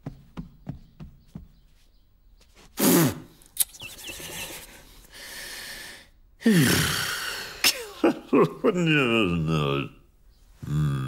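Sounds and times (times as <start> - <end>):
high vocal chirps: 2.8 - 5.7
sharp mouth click: 3.4 - 4.2
steady vocal hiss: 3.9 - 11.0
breathy vocal huff: 5.1 - 8.0.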